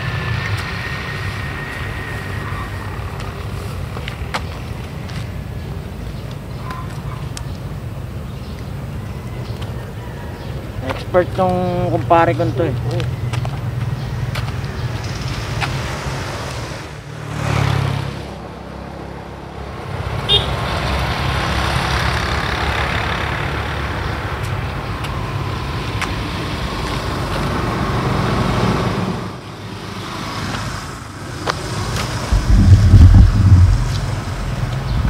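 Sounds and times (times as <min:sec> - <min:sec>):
motor vehicle passing: 0:00.0 - 0:06.2, 0:13.1 - 0:24.4, 0:29.8 - 0:35.0
loud low thuds: 0:32.3 - 0:35.0.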